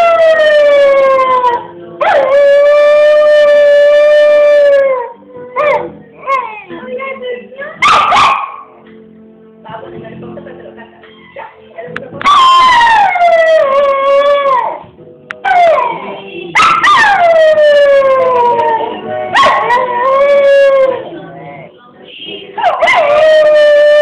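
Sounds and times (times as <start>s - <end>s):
dog howling: 12.3s - 14.8s, 15.4s - 21.1s, 22.6s - 24.0s.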